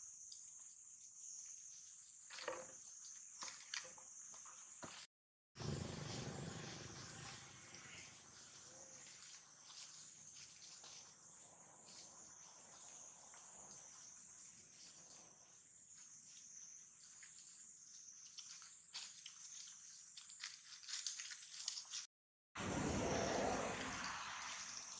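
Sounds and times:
high-pitched insect chorus: 5.6 - 21.9, 22.6 - 24.9.

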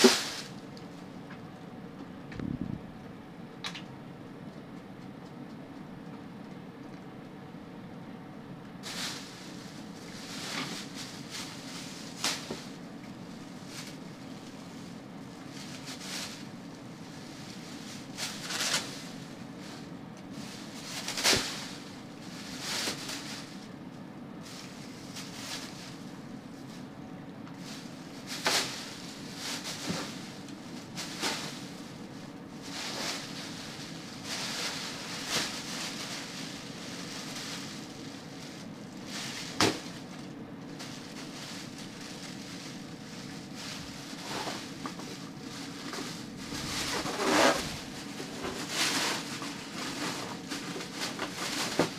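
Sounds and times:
plastic bag crinkling: 8.8 - 14.6, 27.6 - 51.9.

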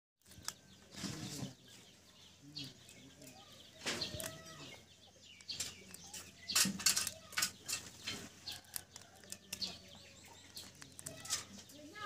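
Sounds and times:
eggshell crackling and snapping: 3.8 - 4.6, 5.4 - 11.8.

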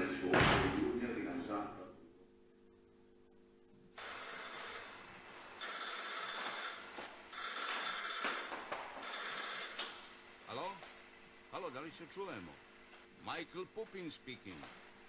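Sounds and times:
telephone bell ringing: 4.0 - 10.1.

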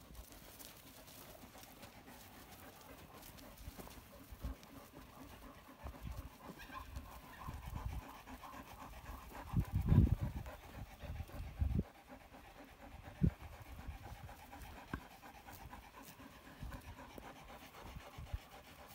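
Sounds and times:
sheep huffing: 0.0 - 18.9.

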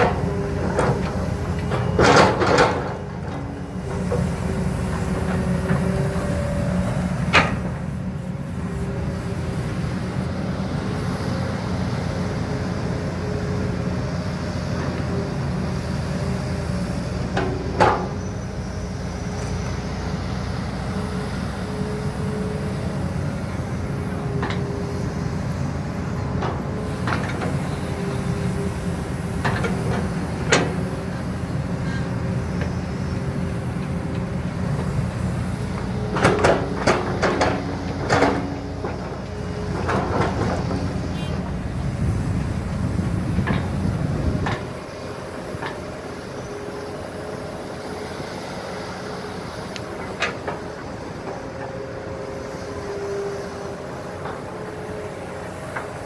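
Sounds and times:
metallic clanks and knocks: 0.0 - 3.0
diesel engine drone: 0.0 - 56.0.

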